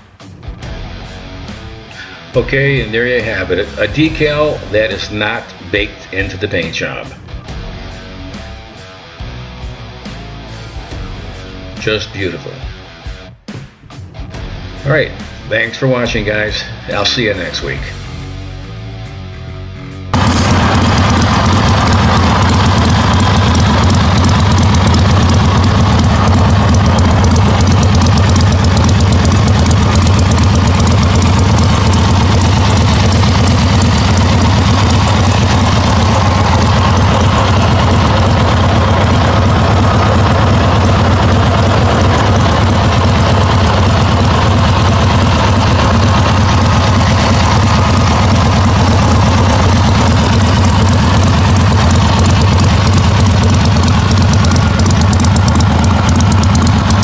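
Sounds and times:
motorcycle engine idling: 0.9 - 5.4, 20.1 - 57.0.

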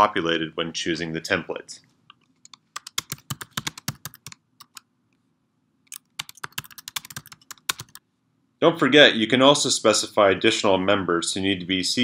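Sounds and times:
computer keyboard typing: 2.4 - 4.9, 5.9 - 8.0.

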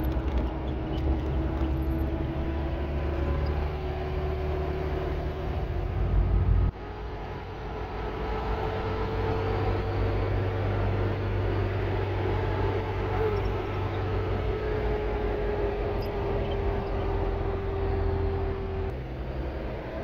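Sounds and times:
vehicle engine and road drone: 0.0 - 20.0.

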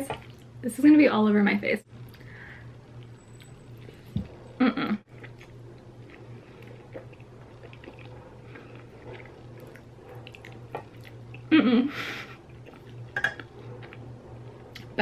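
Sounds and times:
muffled hum and slurp: 0.0 - 15.0
wet chewing and sucking: 0.1 - 0.6, 5.1 - 11.5, 12.4 - 14.9.

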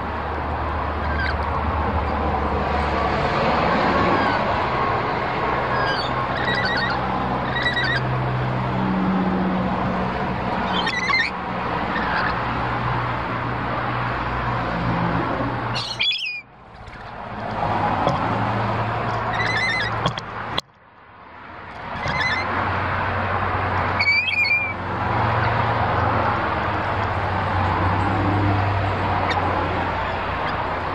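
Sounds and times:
birds squawking: 0.8 - 2.3, 2.9 - 13.1, 15.5 - 17.2, 17.9 - 20.5, 21.8 - 22.6, 23.8 - 26.1, 27.5 - 30.9.

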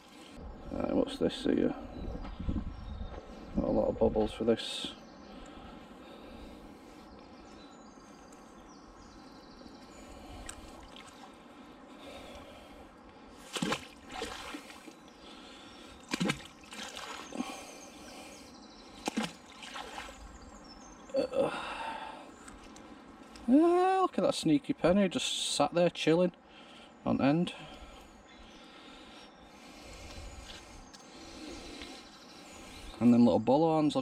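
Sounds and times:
water trickling and splashing: 10.7 - 11.3, 13.5 - 15.0, 16.0 - 17.6, 19.0 - 20.3.

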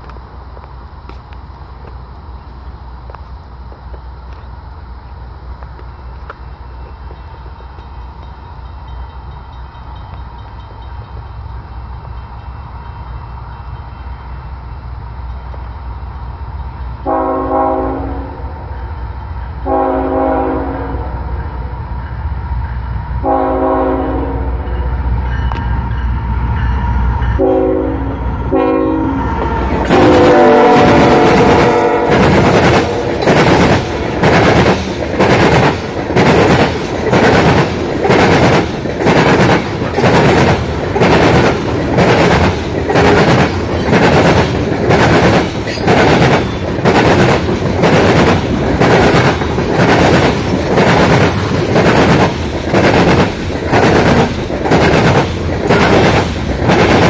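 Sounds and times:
train wheels clickety-clack: 5.6 - 14.4, 29.2 - 57.0
locomotive horn blasts: 17.0 - 18.7, 19.6 - 21.7, 23.2 - 24.9, 27.2 - 33.2.

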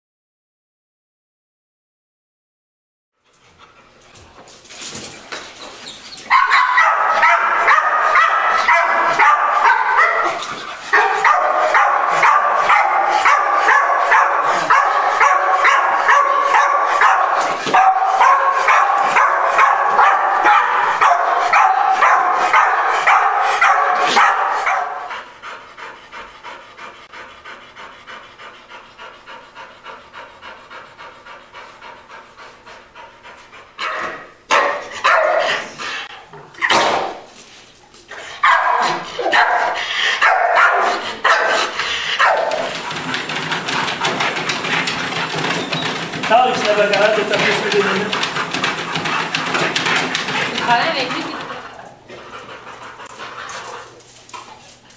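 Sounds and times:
dog panting: 3.2 - 36.4, 37.4 - 54.9
dog barking and whining: 5.8 - 25.1, 33.8 - 37.2, 38.1 - 51.5.

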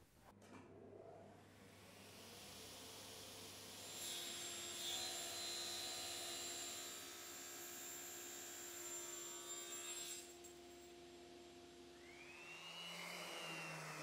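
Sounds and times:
table saw humming: 12.0 - 14.0.

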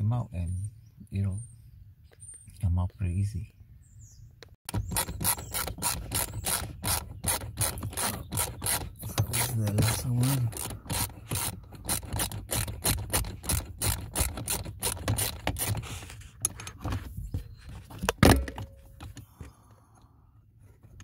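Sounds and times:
ratchet clicking: 4.7 - 15.8.

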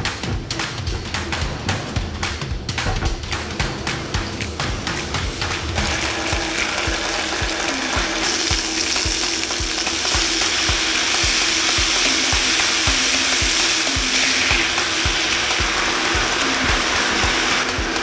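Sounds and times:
chicken sizzling in a pan: 5.8 - 18.0.

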